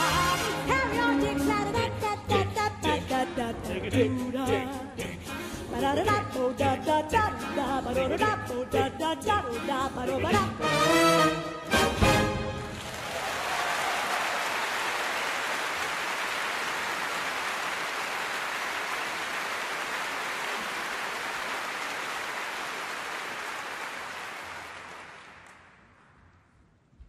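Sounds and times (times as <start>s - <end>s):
audience applauding: 12.6s - 26.0s.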